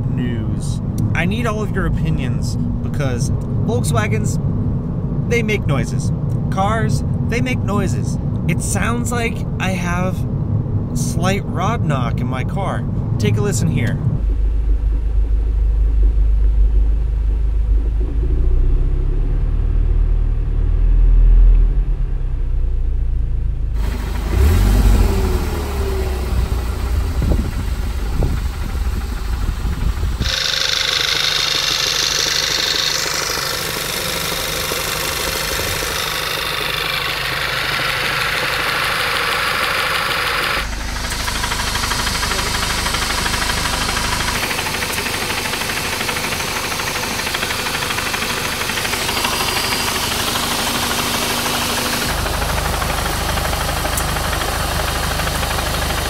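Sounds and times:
car engine running with knocking: 0:23.8 - 0:56.0.

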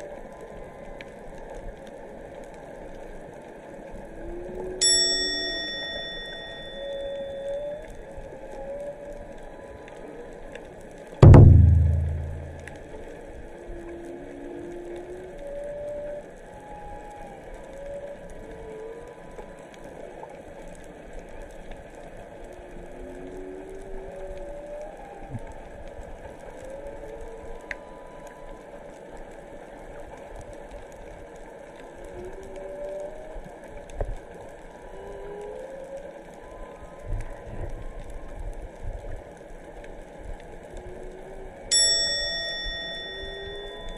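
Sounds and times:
sea hiss and crackle: 0:00.0 - 0:11.2, 0:13.0 - 0:43.9
humpback whale song: 0:04.2 - 0:10.1
bell-like chime: 0:04.8 - 0:07.7, 0:41.7 - 0:43.9
whale song moaning calls: 0:34.8 - 0:38.0.

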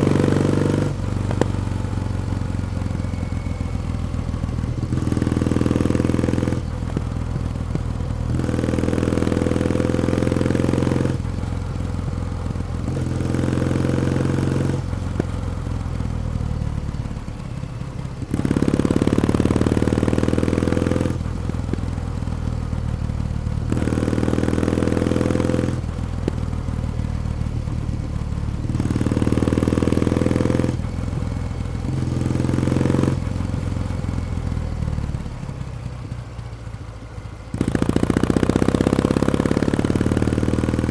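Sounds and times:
motorcycle engine revving: 0:00.0 - 0:40.9.

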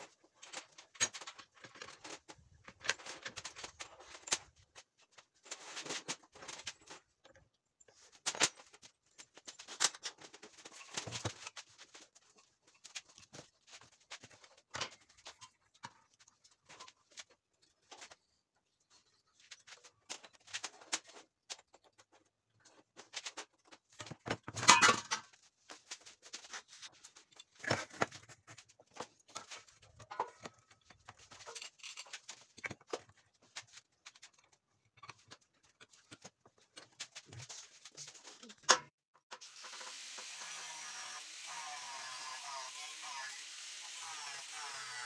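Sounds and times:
angle grinder cutting metal: 0:39.4 - 0:45.0.

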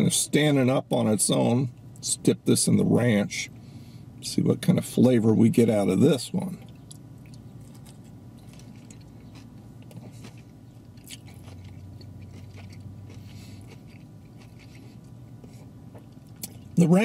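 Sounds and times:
steady low hum: 0:00.0 - 0:17.0
small crunches of breading: 0:06.6 - 0:16.7
person chewing: 0:06.6 - 0:16.8.

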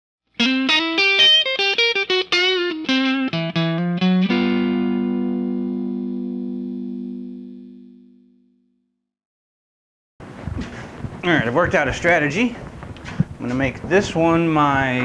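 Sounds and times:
guitar plucked notes and chord: 0:00.4 - 0:08.8.

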